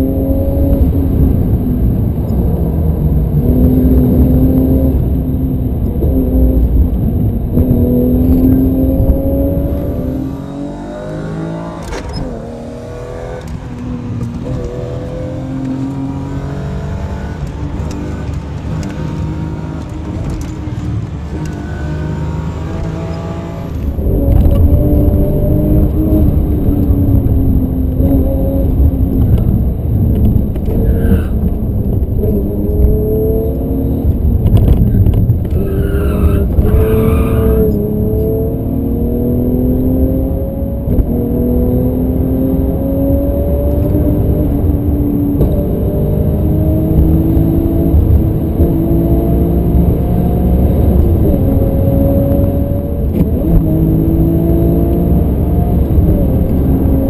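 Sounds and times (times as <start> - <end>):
car engine revving: 0.0 - 57.0.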